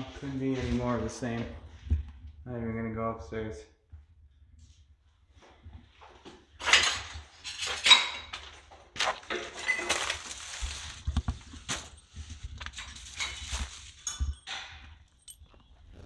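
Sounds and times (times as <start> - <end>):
footsteps crunching over debris: 8.4 - 14.4
light clinks: 14.0 - 16.0.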